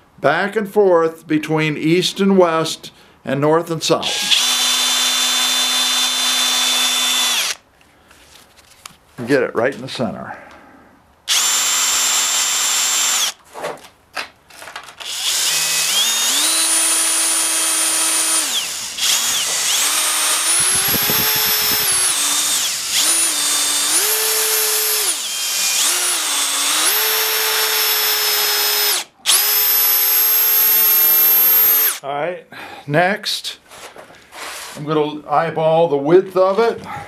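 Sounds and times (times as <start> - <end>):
power drill boring into wood: 4.0 - 7.6, 11.3 - 13.4, 15.0 - 32.0.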